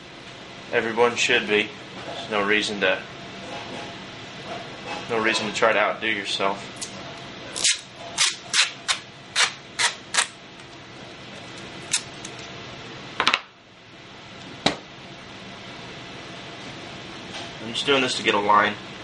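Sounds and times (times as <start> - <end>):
masking tape pulled and torn: 7.6 - 10.4, 11.8 - 12.4.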